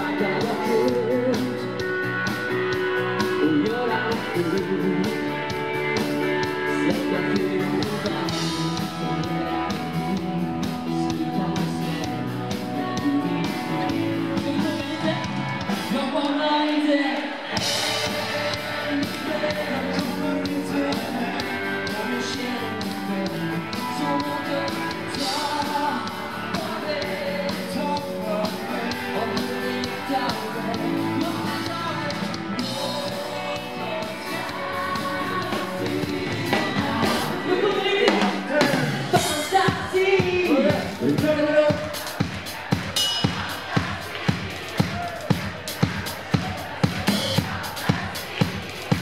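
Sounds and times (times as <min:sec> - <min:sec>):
live rock funk band: 0:00.0 - 0:16.2, 0:17.4 - 0:49.0
person singing: 0:00.0 - 0:49.0
drum hits: 0:38.1 - 0:49.0.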